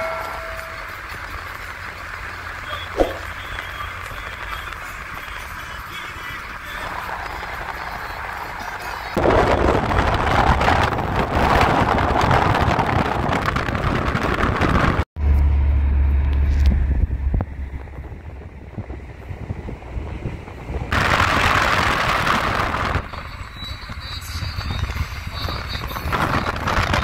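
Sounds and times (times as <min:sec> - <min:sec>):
rushing wind: 0:00.0 - 0:15.1, 0:16.5 - 0:27.0
car road noise: 0:00.0 - 0:27.0
deep low rumble: 0:02.6 - 0:03.7.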